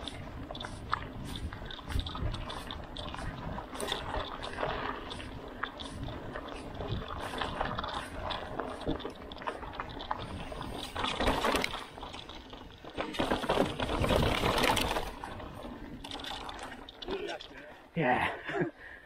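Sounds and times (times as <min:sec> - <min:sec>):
wind buffeting microphone: 0:00.0 - 0:11.1
bike rattling: 0:00.0 - 0:18.6
bicycle tyres on dirt: 0:00.0 - 0:19.0.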